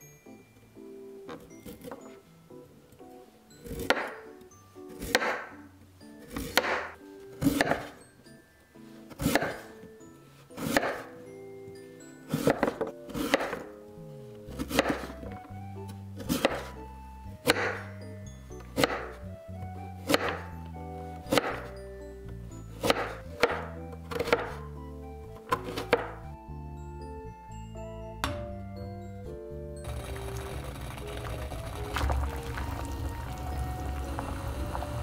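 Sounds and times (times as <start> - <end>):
knife cutting onto cutting board: 14.6 - 15.2.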